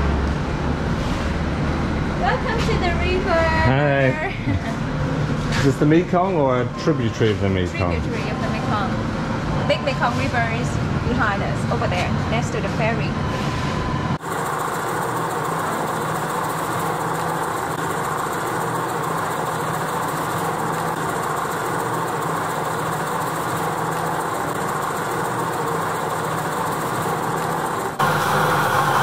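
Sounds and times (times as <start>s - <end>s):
clay extruder motor droning: 14.2s - 29.0s.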